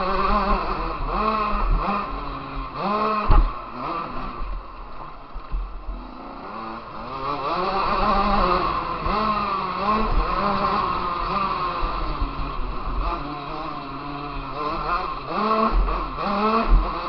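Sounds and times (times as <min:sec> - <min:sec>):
motocross bike engine revving: 0:00.0 - 0:17.0
low thuds: 0:03.2 - 0:03.6.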